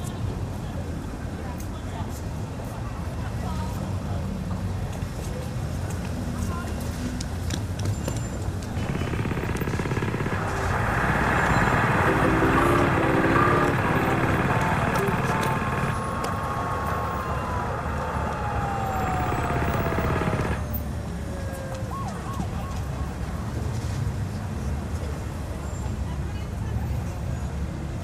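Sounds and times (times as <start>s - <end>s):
traffic rumble: 8.6s - 21.3s
long tone sliding downward: 8.7s - 20.7s.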